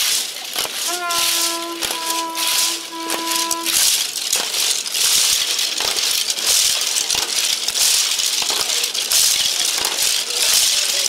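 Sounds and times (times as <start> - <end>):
held horn note: 0.9 - 3.9
animal bones rattling and clacking: 3.8 - 11.0.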